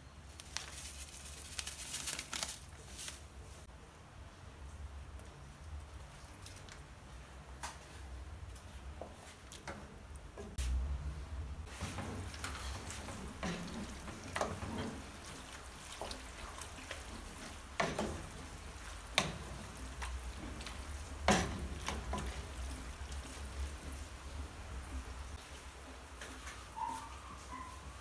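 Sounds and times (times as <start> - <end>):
wet squelching of pasta: 5.5 - 8.0, 11.6 - 25.8.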